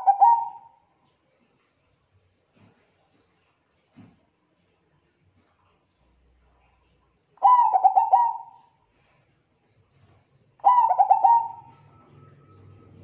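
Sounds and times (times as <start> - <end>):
dove cooing: 0.0 - 0.8, 7.4 - 8.8, 10.6 - 13.0.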